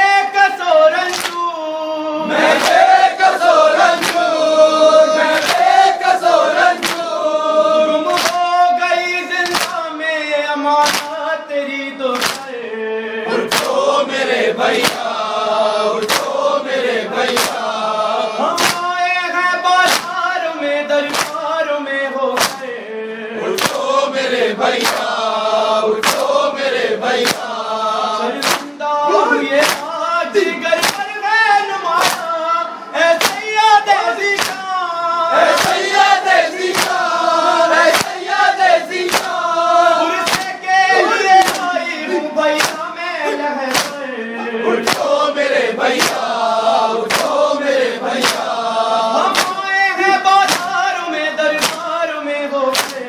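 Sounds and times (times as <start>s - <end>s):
man chanting: 0.0s - 2.6s, 6.5s - 13.6s, 18.2s - 23.6s, 28.1s - 35.6s, 38.8s - 45.6s, 49.0s - 53.0s
group singing in chorus: 0.0s - 53.0s
hands striking chests: 2.4s - 4.3s, 5.3s - 7.2s, 8.1s - 8.5s, 9.4s - 9.8s, 10.8s - 11.2s, 12.2s - 12.5s, 13.4s - 13.9s, 14.8s - 15.1s, 16.0s - 16.5s, 17.2s - 17.7s, 18.5s - 18.9s, 19.8s - 20.2s, 21.0s - 21.4s, 22.4s - 22.7s, 23.6s - 23.9s, 24.8s - 25.2s, 26.0s - 26.4s, 27.2s - 27.6s, 28.4s - 28.8s, 29.6s - 29.9s, 30.8s - 31.1s, 32.0s - 32.3s, 33.1s - 33.5s, 34.3s - 34.7s, 35.5s - 39.5s, 40.2s - 41.8s, 42.5s - 42.9s, 43.6s - 44.0s, 44.8s - 45.2s, 45.9s - 46.3s, 47.0s - 47.5s, 48.2s - 48.6s, 49.2s - 49.6s, 50.4s - 50.8s, 51.6s - 51.9s, 52.7s - 53.0s.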